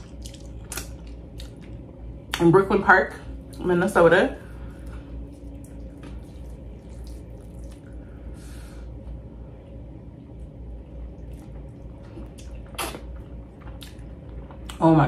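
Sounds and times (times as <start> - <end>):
wet squishing of food with fingers: 0.0 - 2.5, 4.4 - 8.7, 10.9 - 14.8
low steady hum: 0.0 - 15.0
wet mouth sound: 12.4 - 13.0.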